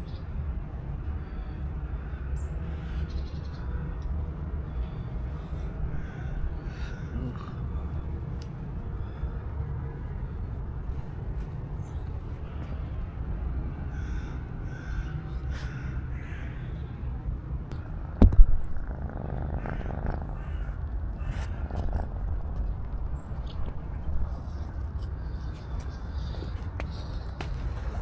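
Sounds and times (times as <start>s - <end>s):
kitten purring: 17.8s - 24.7s.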